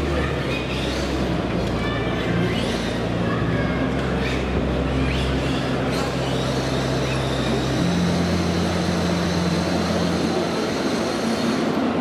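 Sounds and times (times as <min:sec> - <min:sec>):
crowd chatter: 0:00.0 - 0:12.0
steady low hum: 0:00.0 - 0:12.0.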